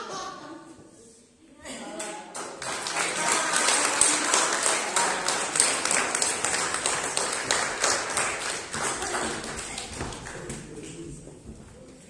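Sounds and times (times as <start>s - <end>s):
small audience clapping: 1.8s - 11.4s.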